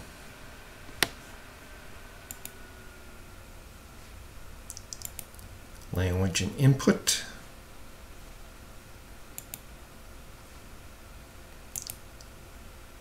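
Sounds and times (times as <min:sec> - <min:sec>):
low room hiss: 0:00.0 - 0:13.0
computer mouse clicking: 0:02.3 - 0:02.6, 0:04.7 - 0:05.4, 0:09.4 - 0:09.7, 0:11.7 - 0:12.3.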